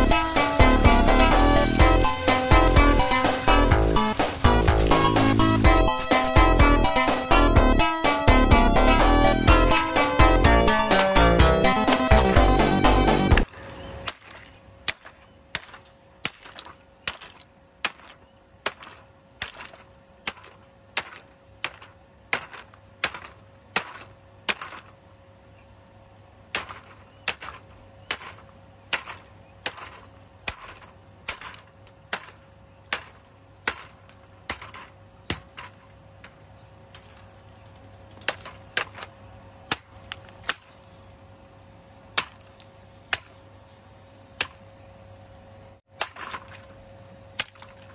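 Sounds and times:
steady low hum: 0:00.0 - 0:47.9
plastic fan cracking apart: 0:13.4 - 0:25.0, 0:26.5 - 0:41.0, 0:45.9 - 0:46.8, 0:47.4 - 0:47.9.

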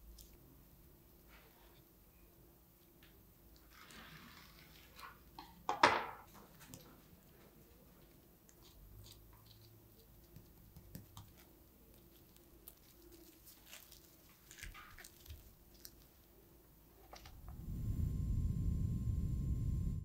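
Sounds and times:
plastic cling film crinkling: 0:11.2 - 0:17.4.

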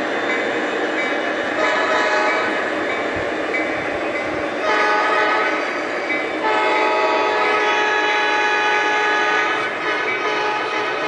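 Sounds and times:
model train cars rolling on track: 0:00.0 - 0:11.0
model train horn blasts: 0:01.6 - 0:02.6, 0:04.6 - 0:05.6, 0:06.4 - 0:11.0.

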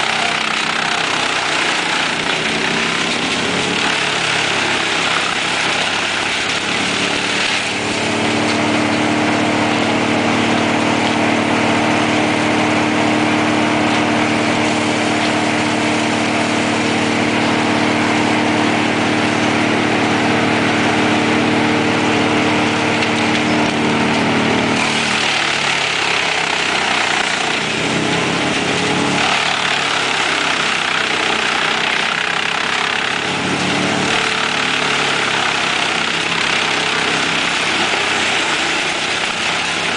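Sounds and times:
branches being chipped: 0:00.0 - 0:09.2, 0:22.6 - 0:39.9
wood chipper engine drone: 0:00.0 - 0:39.9.

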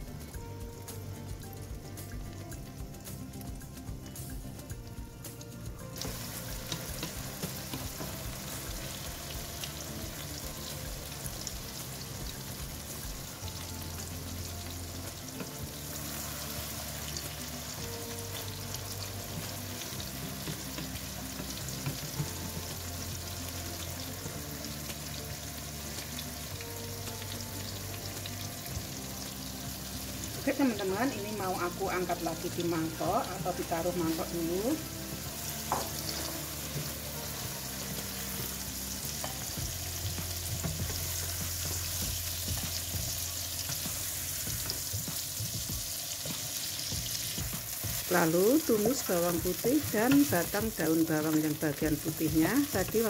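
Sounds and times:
background music: 0:00.0 - 0:53.0
egg sizzling in hot oil: 0:00.0 - 0:53.0
wooden spatula scraping wok: 0:06.0 - 0:10.3, 0:33.0 - 0:53.0.

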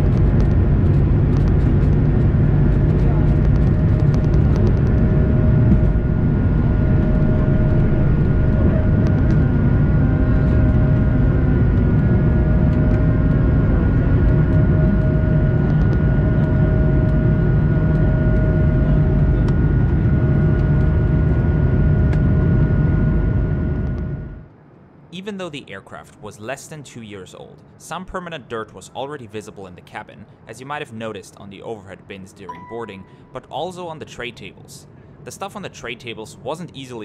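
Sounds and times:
jet engines roaring in cabin: 0:00.0 - 0:24.6.

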